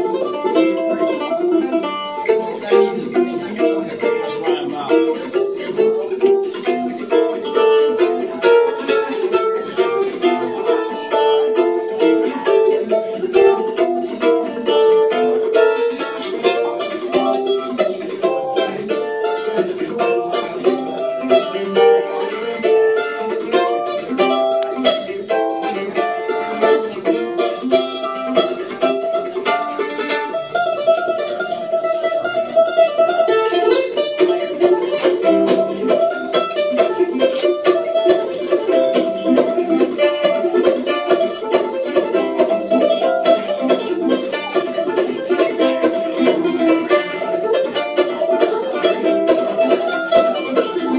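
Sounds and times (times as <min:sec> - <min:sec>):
mandolin plucked with a pick: 0:00.0 - 0:50.9.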